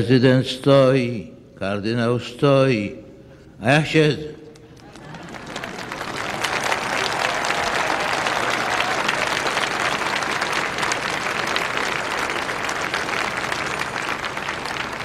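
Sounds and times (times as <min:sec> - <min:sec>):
crowd applauding: 0:04.7 - 0:15.0.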